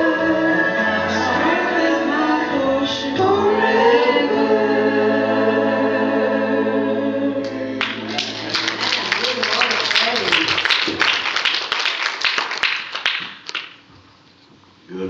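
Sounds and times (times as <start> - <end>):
small group singing a hymn: 0.0 - 8.4
applause: 7.8 - 13.8.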